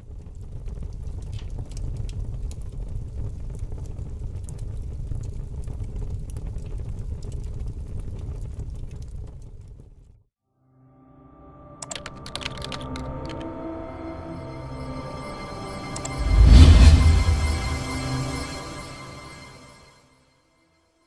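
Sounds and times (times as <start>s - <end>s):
fire flames rumbling: 0.0s - 10.0s
fire crackling: 0.1s - 10.0s.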